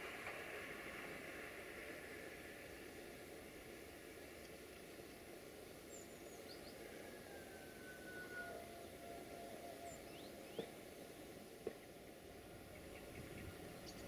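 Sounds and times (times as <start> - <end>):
bird chirps: 12.7 - 14.0.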